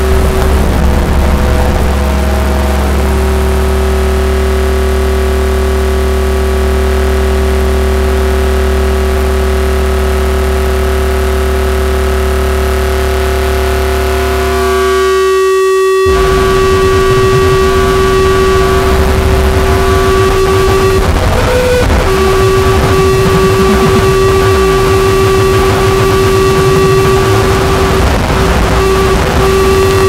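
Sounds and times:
low rumble: 0:00.0 - 0:06.3, 0:16.0 - 0:30.0
electronic drone music: 0:00.0 - 0:30.0.

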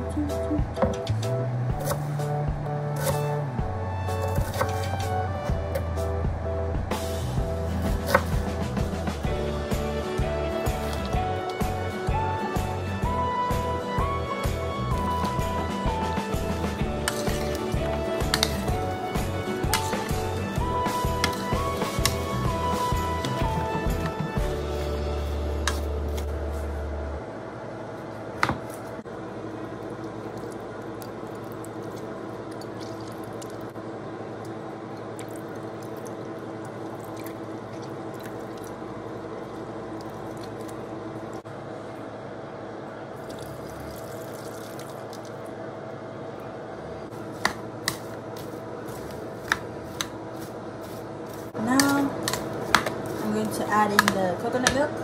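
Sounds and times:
steady background hum: 0:00.0 - 0:55.0
wet squishing and dripping: 0:29.9 - 0:33.8, 0:34.4 - 0:38.8, 0:40.0 - 0:40.9, 0:43.2 - 0:45.5.

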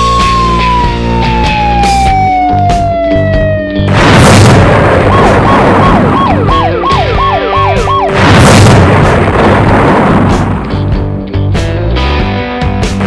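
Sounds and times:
police siren: 0:00.0 - 0:03.9, 0:05.0 - 0:08.2
rock music: 0:00.0 - 0:13.0
loud cartoon crash: 0:03.9 - 0:06.4, 0:08.1 - 0:11.0.

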